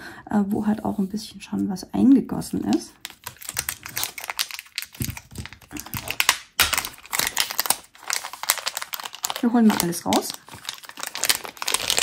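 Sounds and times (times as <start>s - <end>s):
plastic packaging clicking and crinkling: 2.6s - 12.0s.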